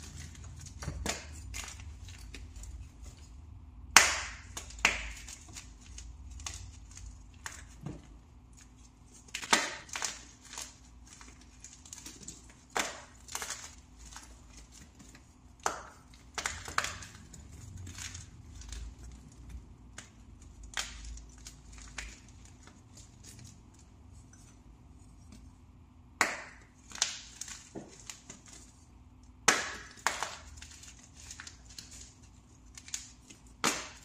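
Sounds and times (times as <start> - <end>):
powder blocks crunching: 4.3 - 23.6.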